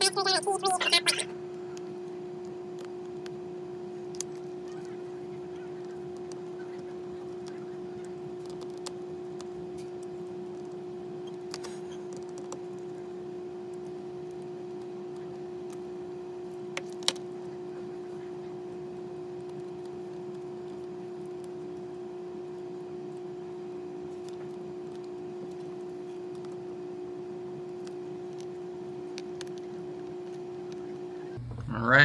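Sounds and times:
steady hum: 0.0s - 32.0s.

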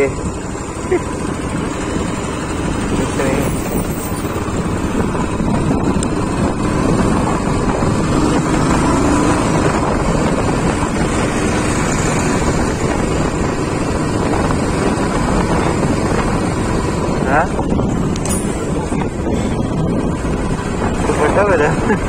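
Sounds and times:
motorcycle engine running: 0.0s - 22.0s
wind rushing over microphone: 0.0s - 22.0s.

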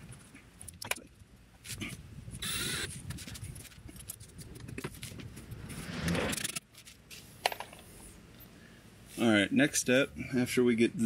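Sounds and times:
cordless drill whirring: 2.4s - 2.9s
rattling and scraping of screws: 2.4s - 8.1s.

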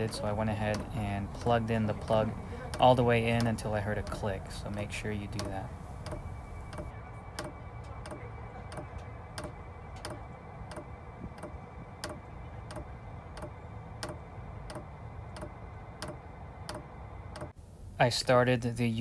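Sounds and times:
fuel pump clicking: 0.0s - 17.6s.

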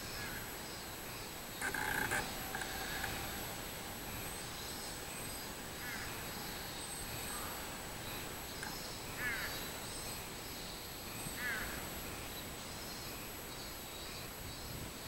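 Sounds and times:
cicadas droning: 0.0s - 15.0s
bird calling: 1.6s - 10.0s.

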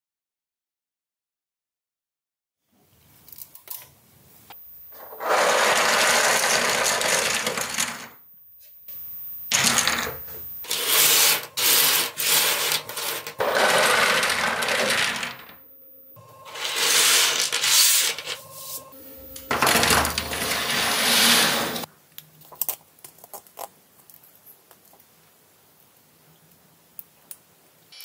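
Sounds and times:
plastic parts clattering and scraping: 5.0s - 8.2s, 9.5s - 15.6s, 16.5s - 18.5s, 19.4s - 21.9s.

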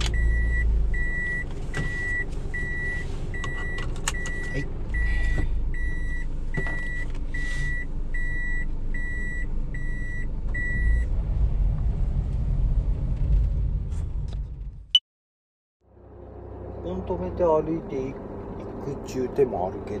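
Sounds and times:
van engine idling: 0.0s - 11.0s
reverse warning beeper: 0.1s - 11.1s.

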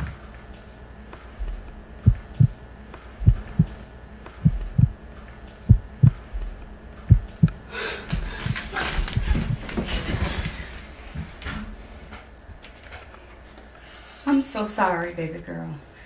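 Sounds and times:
heartbeat thumps: 1.3s - 2.6s, 3.2s - 5.0s, 5.7s - 9.8s.

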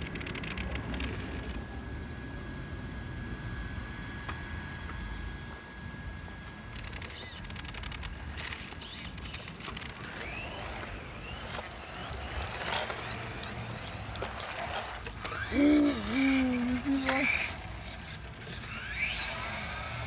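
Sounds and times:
rc car electric motors whining: 0.0s - 20.0s
tyres scrabbling over rough ground: 7.1s - 15.5s.

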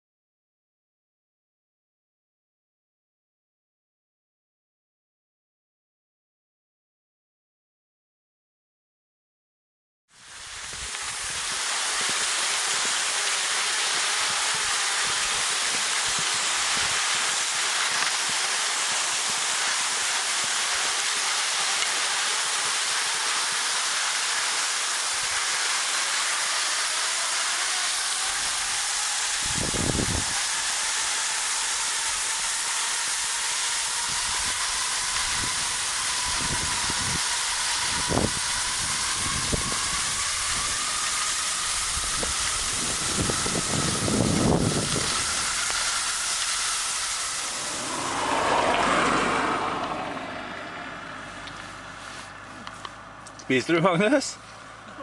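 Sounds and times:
skis gliding over snow: 10.2s - 50.1s, 51.3s - 52.9s.

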